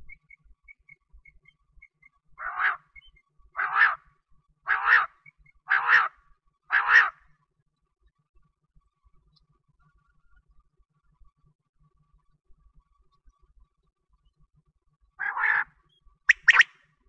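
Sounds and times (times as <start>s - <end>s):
quail calling: 2.4s - 4.1s, 4.7s - 7.3s, 15.2s - 16.7s.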